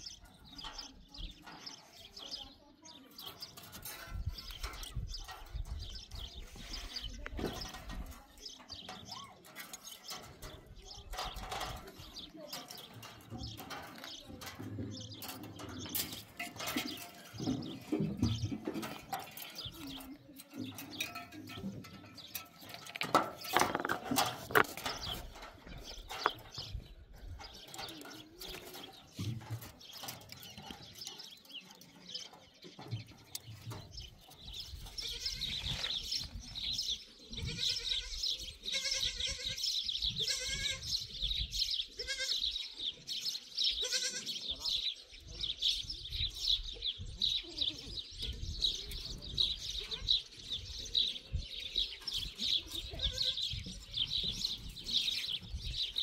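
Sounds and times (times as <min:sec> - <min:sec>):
knocks and clatter: 0:20.6 - 0:26.8
goats bleating: 0:37.4 - 0:40.9, 0:41.9 - 0:42.5, 0:43.8 - 0:44.4.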